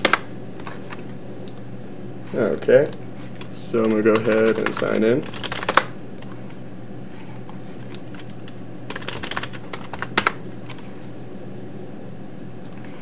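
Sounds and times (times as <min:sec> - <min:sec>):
computer keyboard typing: 0:00.0 - 0:00.8, 0:03.8 - 0:05.9, 0:08.0 - 0:10.8.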